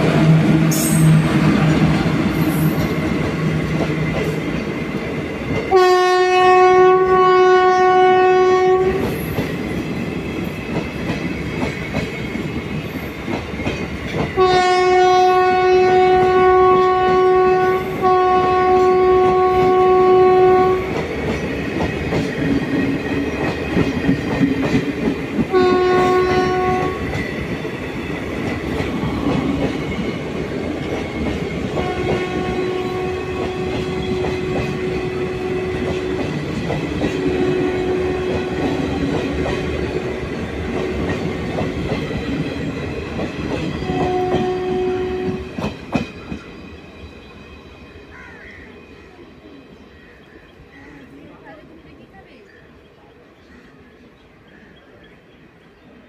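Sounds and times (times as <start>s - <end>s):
locomotive horn blasts: 5.7s - 9.1s, 14.4s - 21.0s, 25.5s - 27.2s, 31.8s - 36.1s, 37.3s - 38.8s, 43.8s - 45.4s
train wheels clattering over rail joints: 9.0s - 14.5s.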